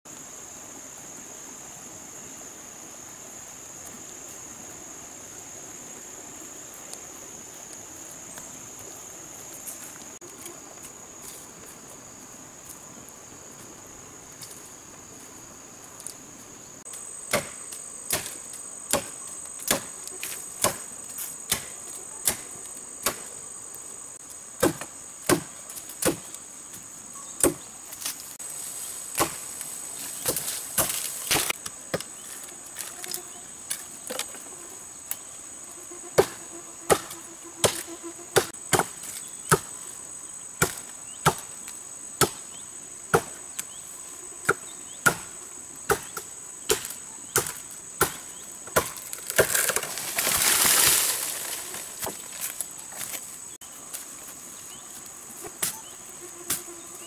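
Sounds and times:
insects droning: 0.0s - 57.0s
blade chopping bamboo: 17.3s - 20.0s, 24.6s - 26.2s, 29.2s - 29.4s, 45.9s - 52.2s.

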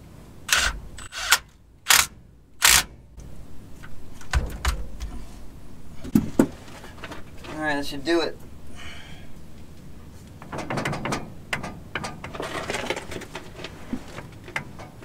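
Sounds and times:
cordless power tool bursts: 0.5s - 2.9s.

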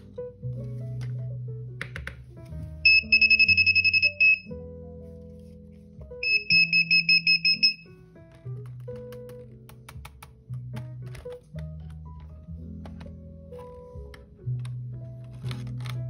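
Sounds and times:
background music: 0.0s - 16.0s
rapid electronic buzzer beeping: 2.9s - 4.5s, 6.2s - 7.8s.

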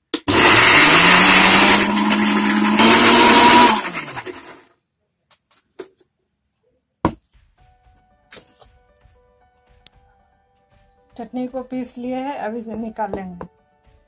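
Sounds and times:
mixer grinder motor running: 0.3s - 4.7s.

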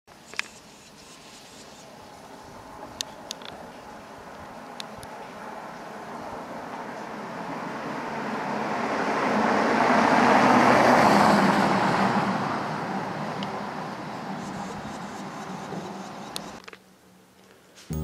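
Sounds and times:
car driving past: 5.1s - 16.6s.

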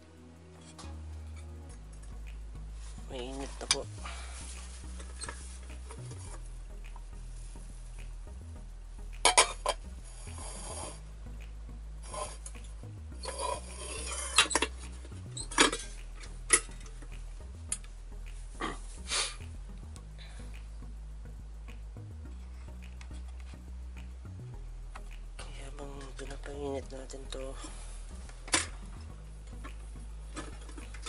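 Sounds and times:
low steady hum: 0.0s - 31.0s
rasping metal scrapes: 13.2s - 14.7s.

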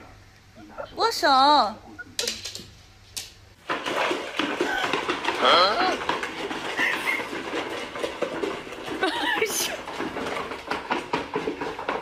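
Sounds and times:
plastic bowls clattering on tiles: 2.2s - 2.7s, 3.6s - 12.0s
pets eating kibble: 3.6s - 12.0s.

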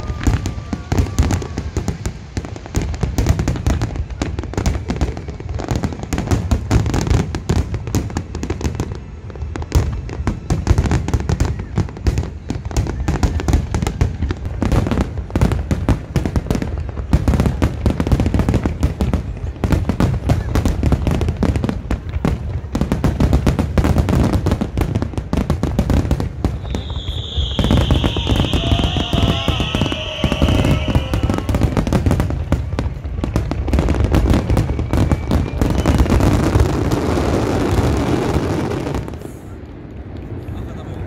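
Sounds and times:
fireworks shells bursting: 26.5s - 32.0s.

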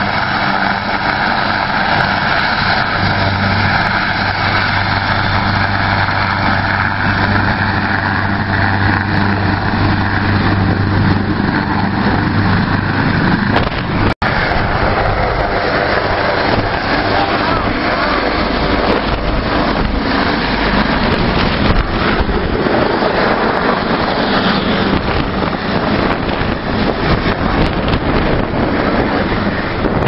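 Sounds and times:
helicopter rotor noise: 0.0s - 30.0s
helicopter turbine whine: 0.0s - 30.0s.

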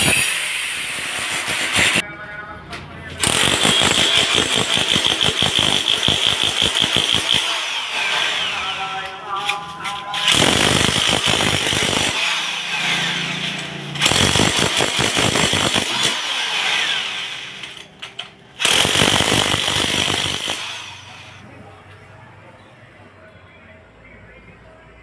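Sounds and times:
demolition hammer hammering concrete: 3.2s - 8.3s, 10.2s - 17.0s, 18.6s - 20.8s.

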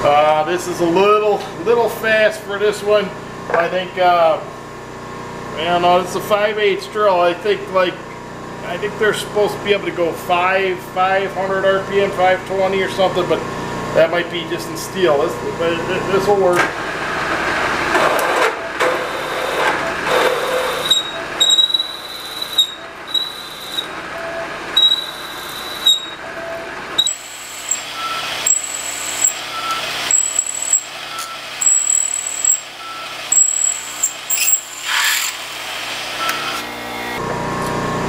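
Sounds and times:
milling machine drilling whine: 18.8s - 37.4s.

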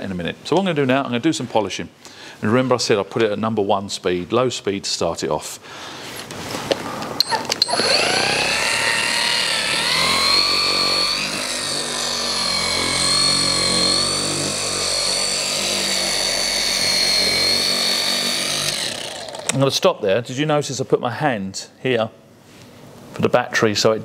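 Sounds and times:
polisher motor whine: 7.6s - 19.6s.

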